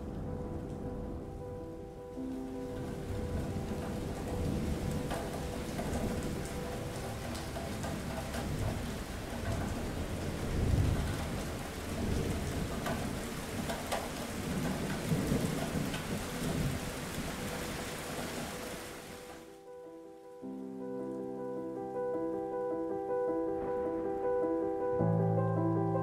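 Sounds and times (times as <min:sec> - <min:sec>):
thunder rumbles: 0:00.0 - 0:19.4
rain falling: 0:00.0 - 0:25.0.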